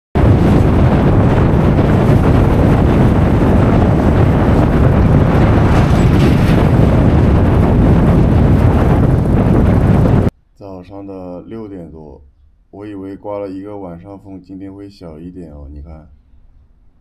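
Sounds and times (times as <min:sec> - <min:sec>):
gale wind buffeting microphone: 0:00.2 - 0:10.3.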